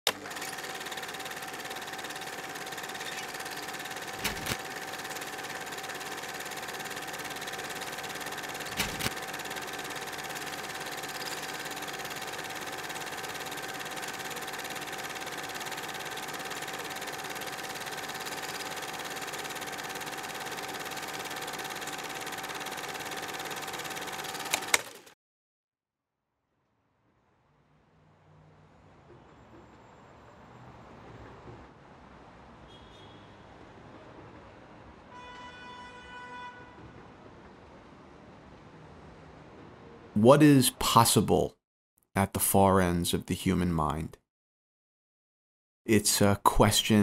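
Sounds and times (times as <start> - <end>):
film projector whirring: 0.1 - 25.2.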